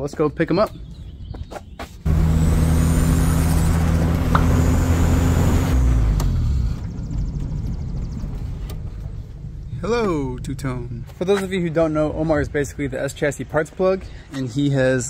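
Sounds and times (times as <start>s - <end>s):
car engine idling: 2.1s - 11.2s.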